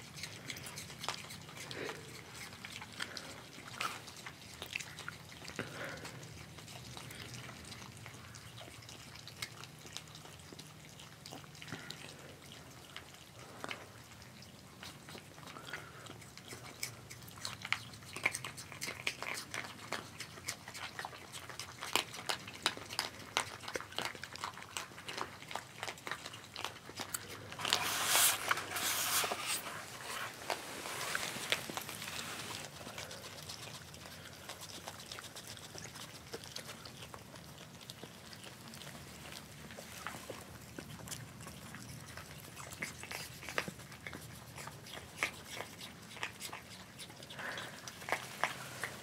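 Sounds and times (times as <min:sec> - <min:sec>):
animals crunching dry kibble: 0:00.0 - 0:49.0
close rustling: 0:27.4 - 0:33.8.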